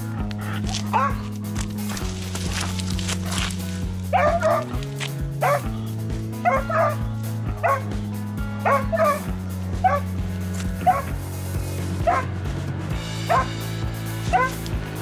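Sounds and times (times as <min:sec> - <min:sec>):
background music with beat: 0:00.0 - 0:15.0
dog yipping and barking: 0:00.8 - 0:01.3, 0:04.1 - 0:04.8, 0:05.4 - 0:05.7, 0:06.4 - 0:07.0, 0:07.6 - 0:07.9, 0:08.6 - 0:10.1, 0:10.8 - 0:11.1, 0:12.0 - 0:12.3, 0:13.3 - 0:13.5, 0:14.3 - 0:14.6.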